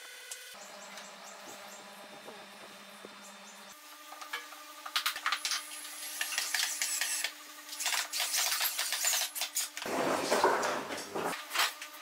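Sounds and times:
wood scraping rub: 9.8s - 11.4s.

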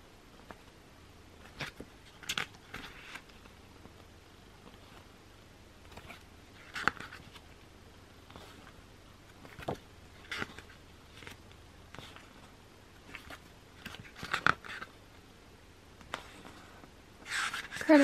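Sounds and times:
photobook pages turning: 1.4s - 3.5s, 5.9s - 7.5s, 8.3s - 14.9s, 16.0s - 18.0s.

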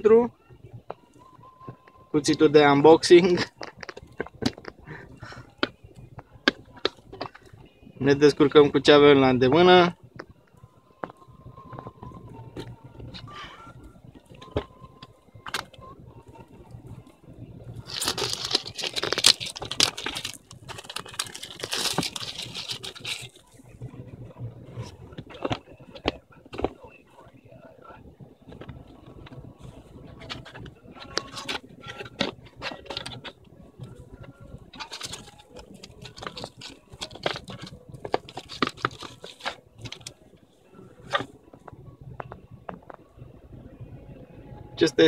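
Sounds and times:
cardboard box rustling: 17.8s - 23.4s, 34.8s - 40.2s
packaging crinkling and tearing: 17.8s - 23.4s, 34.8s - 40.2s.

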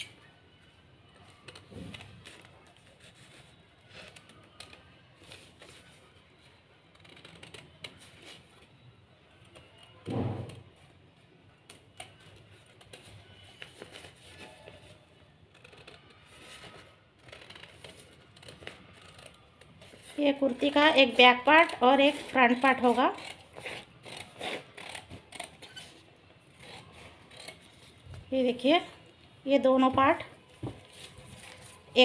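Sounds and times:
paper rustling: 12.1s - 15.1s, 30.6s - 32.0s.

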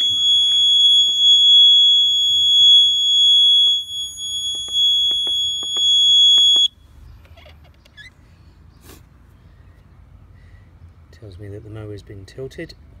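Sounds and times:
high-pitched alarm tone: 0.0s - 6.7s.

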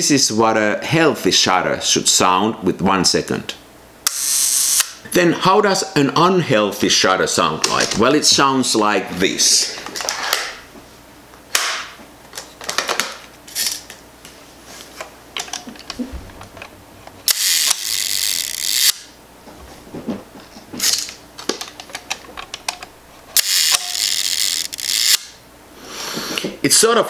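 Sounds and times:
buzzing shutter run: 17.2s - 19.1s, 23.3s - 25.4s
camera shutter clicks: 17.3s - 18.9s, 23.4s - 25.3s.

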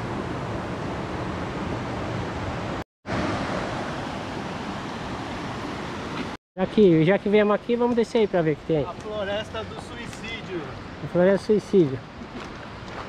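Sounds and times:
river rushing over rocks: 3.1s - 6.3s.

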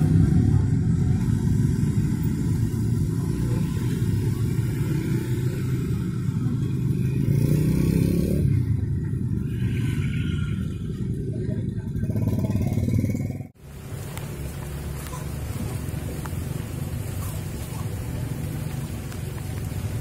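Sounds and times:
motorbike engine accelerating: 0.0s - 9.2s
motorbikes and scooters passing: 0.0s - 20.0s.

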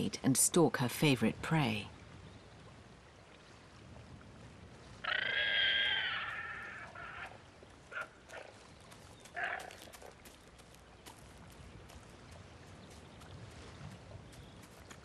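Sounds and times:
guanaco calling: 5.0s - 8.5s.

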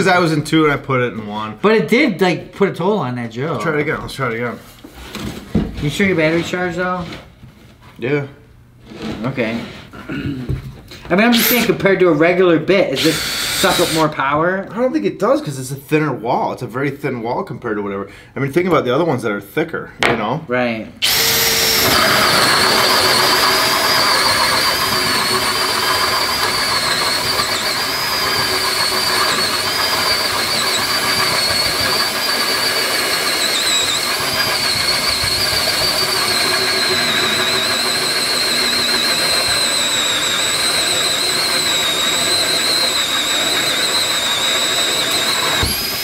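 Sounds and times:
cordless drill whining under load: 13.0s - 14.1s, 21.0s - 46.0s.

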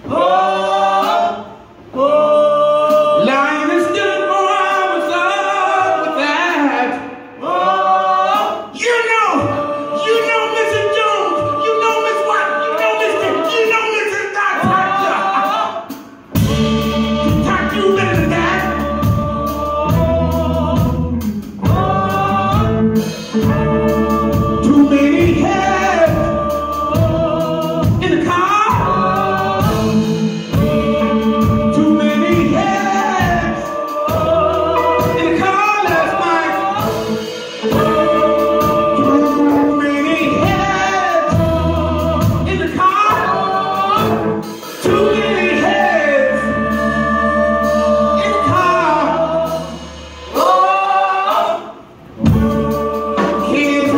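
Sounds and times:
group singing: 0.0s - 53.9s
band with drums bass and guitar: 14.6s - 53.9s.

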